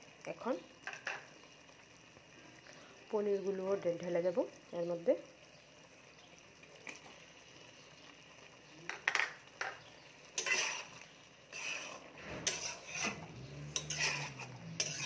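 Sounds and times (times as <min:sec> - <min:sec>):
spatula scraping cooking pot: 0:09.1 - 0:15.0.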